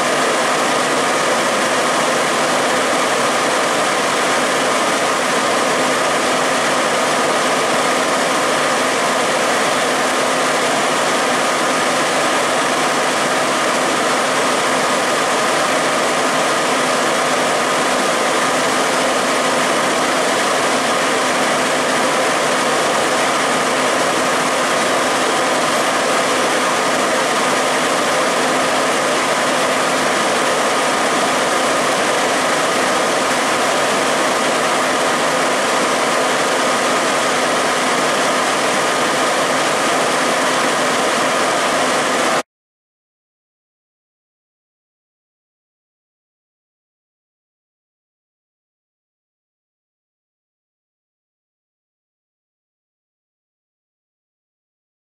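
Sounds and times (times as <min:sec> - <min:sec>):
fire engine running: 0:00.0 - 0:42.4.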